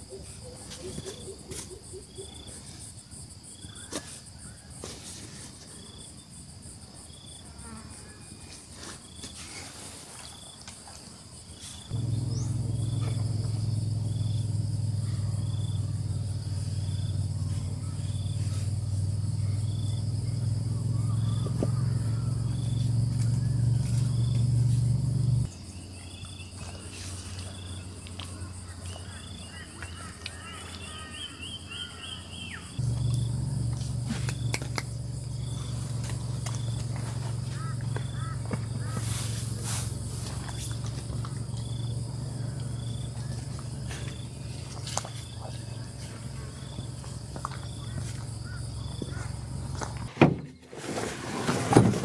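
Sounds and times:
crickets chirping: 0.0 - 52.0
high insect hiss: 0.6 - 50.3
low motor-like hum: 11.9 - 31.0, 31.8 - 50.1.

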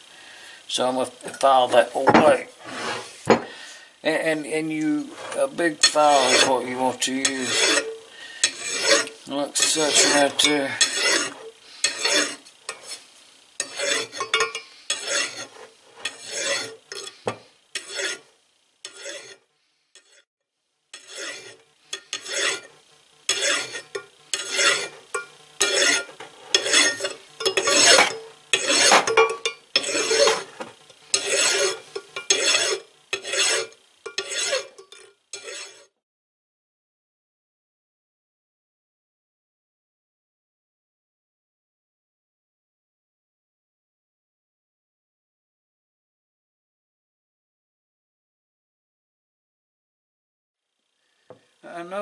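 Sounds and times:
file rasping across steel: 1.4 - 3.4, 4.2 - 13.0, 13.6 - 20.3, 20.9 - 36.0.

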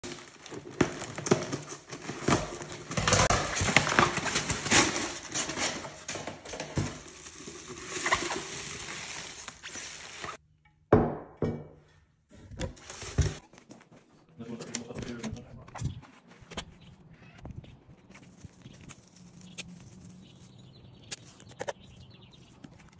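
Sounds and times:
plastic and bubble wrap crinkling: 0.0 - 10.4, 12.5 - 14.2, 17.5 - 22.9.

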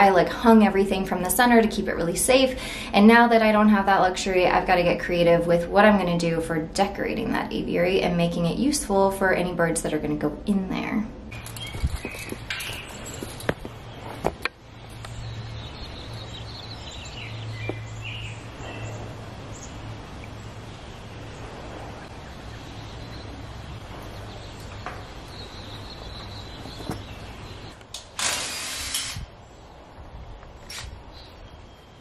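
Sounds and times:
loud hissing burst: 28.0 - 29.3.

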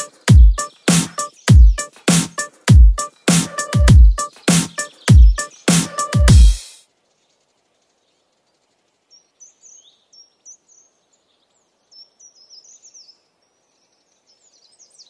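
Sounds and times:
faint songbird chirping: 0.0 - 15.0
outdoor hiss: 5.5 - 12.7.

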